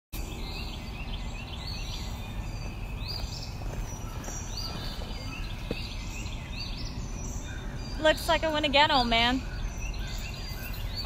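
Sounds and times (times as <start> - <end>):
small birds chirping: 0.2 - 11.0
steady low rumble: 0.2 - 11.0.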